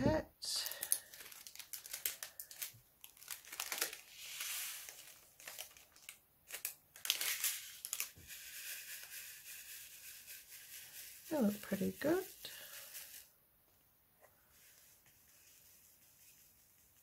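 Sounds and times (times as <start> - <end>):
plastic bag crinkling: 0.6 - 8.3.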